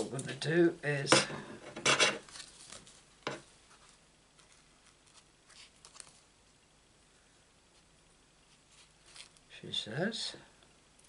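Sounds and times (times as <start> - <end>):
faint handling noises: 1.1 - 6.6, 7.7 - 9.6
paper card scraping rustles: 2.2 - 3.0, 3.7 - 6.3, 8.5 - 9.4.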